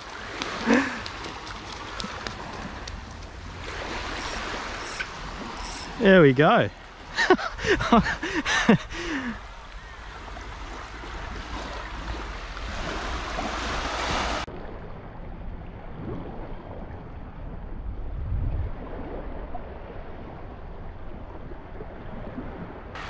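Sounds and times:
small waves lapping: 0.0s - 14.8s
wind buffeting microphone: 0.0s - 23.0s.

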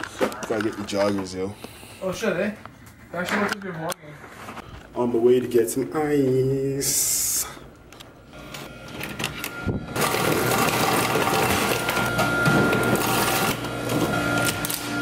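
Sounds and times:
ice machine whine: 8.3s - 15.0s
ice cubes clattering into bucket: 10.0s - 13.6s.

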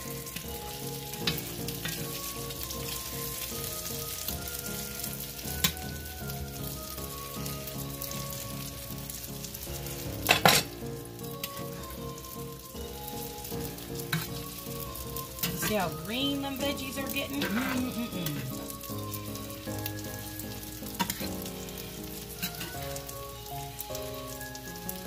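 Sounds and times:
fritters sizzling in hot oil: 0.0s - 25.0s
metal spatula scraping: 14.0s - 14.4s, 15.3s - 16.0s, 17.2s - 18.8s, 20.9s - 21.5s, 22.4s - 22.9s.

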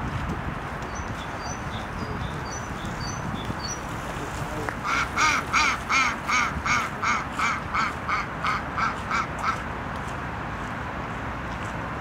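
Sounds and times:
duck quacking: 4.8s - 9.6s.

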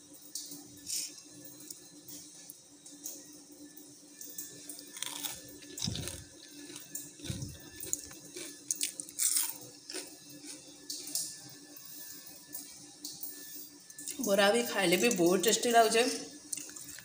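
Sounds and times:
fried fritters crunching: 4.8s - 11.2s.

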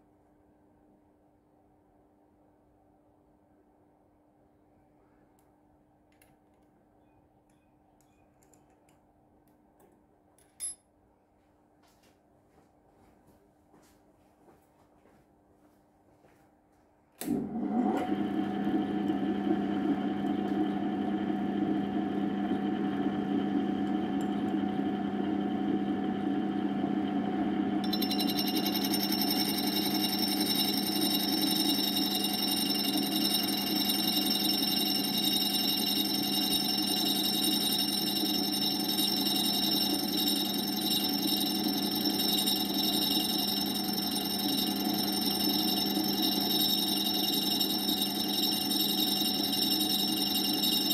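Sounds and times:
lathe motor hum: 17.3s - 50.9s
high-pitched steady whine: 27.8s - 50.9s.

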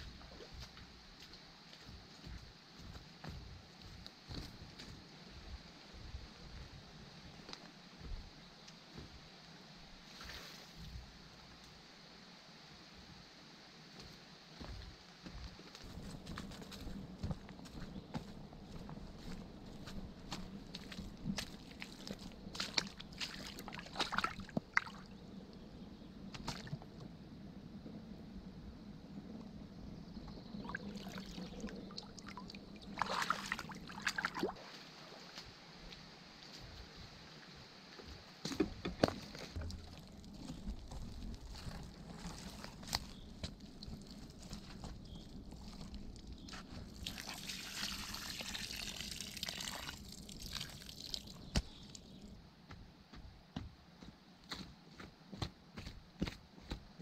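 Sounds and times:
water gurgling and trickling: 20.7s - 25.2s, 30.3s - 35.3s, 39.3s - 52.2s
water splashing and pouring: 21.8s - 25.1s, 30.6s - 34.8s, 46.8s - 52.0s.

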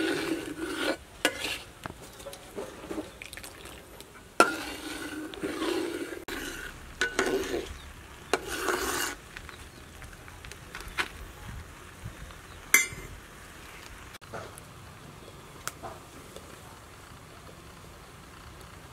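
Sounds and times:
metal spatula scraping a wok: 0.0s - 3.1s, 4.2s - 9.5s.

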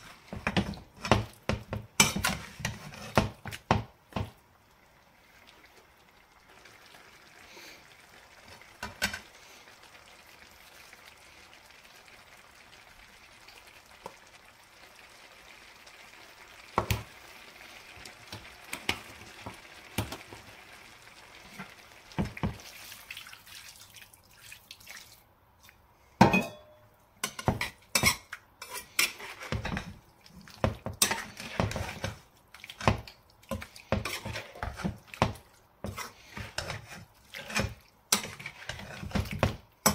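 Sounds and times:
food sizzling in a frying pan: 0.0s - 23.6s, 27.2s - 39.9s
spoon scraping against pan: 2.0s - 3.4s, 27.2s - 30.0s, 30.8s - 32.2s, 32.8s - 35.0s, 35.8s - 39.9s.

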